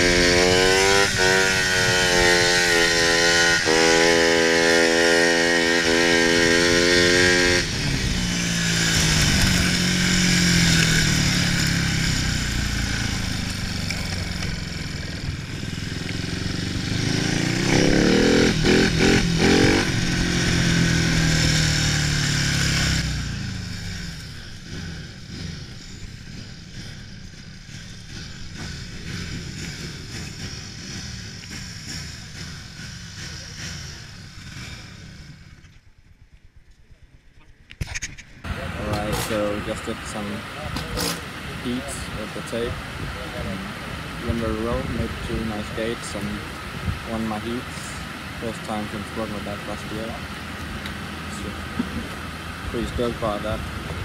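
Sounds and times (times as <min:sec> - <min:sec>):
motorbike engine revving: 0:00.0 - 0:36.6, 0:37.9 - 0:54.0.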